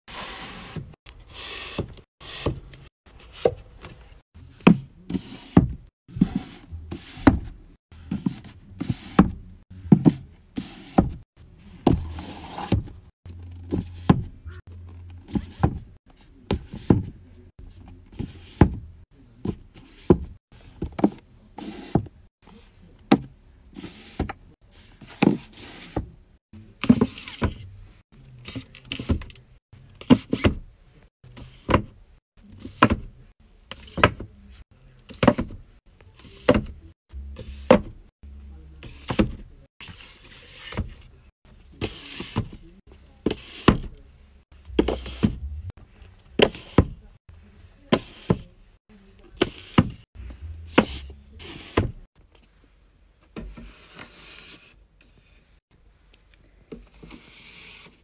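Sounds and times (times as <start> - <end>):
book covers sliding on shelf: 0.1 - 11.2, 11.8 - 14.3, 19.8 - 22.1, 23.7 - 26.1, 44.7 - 45.7, 49.4 - 52.0, 53.4 - 55.2, 56.8 - 58.0
books knocking on shelf: 37.5 - 38.0, 44.7 - 45.7.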